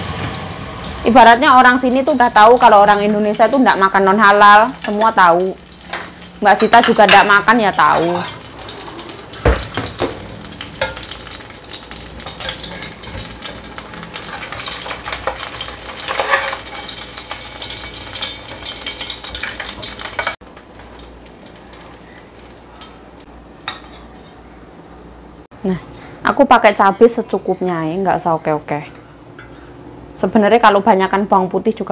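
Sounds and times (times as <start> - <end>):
fish frying in hot oil: 0.0 - 23.3
spatula scraping pan: 12.2 - 17.0.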